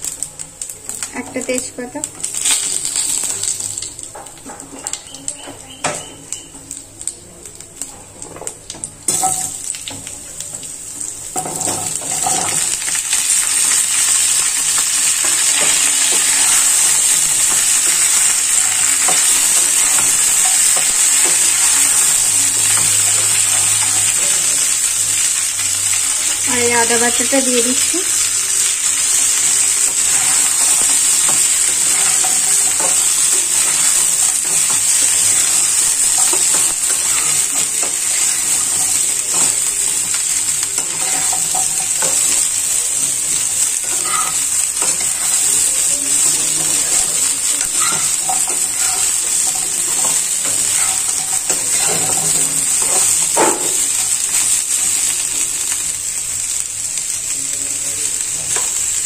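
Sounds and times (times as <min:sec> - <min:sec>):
vegetables sizzling in oil: 0:00.0 - 0:59.0
metal spatula scraping a pan: 0:43.8 - 0:45.5.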